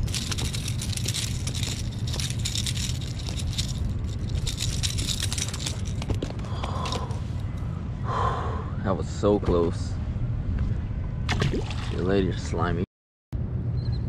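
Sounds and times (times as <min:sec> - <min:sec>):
fishing hooks clicking and rattling: 0:00.0 - 0:07.1
steady low rumble: 0:00.0 - 0:12.8.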